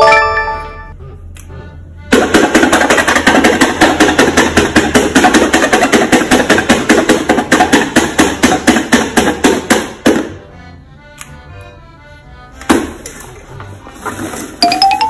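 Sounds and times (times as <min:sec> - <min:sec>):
pen tapping through paper: 0:02.1 - 0:10.3.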